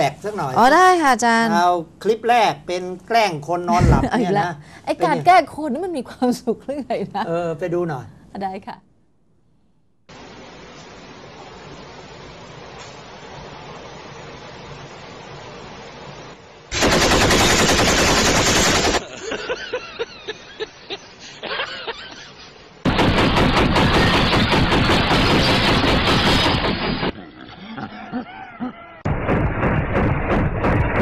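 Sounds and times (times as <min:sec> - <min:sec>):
machine-gun fire: 0:16.7 - 0:19.1, 0:22.8 - 0:27.2, 0:29.1 - 0:31.0.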